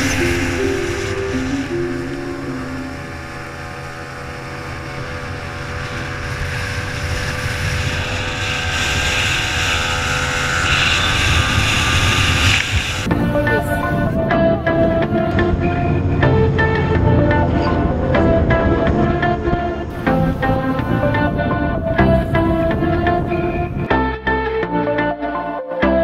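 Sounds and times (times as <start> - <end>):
wind and spray hiss on microphone: 0.0 - 2.3, 5.0 - 14.0
outboard motor running flat out: 0.0 - 24.0.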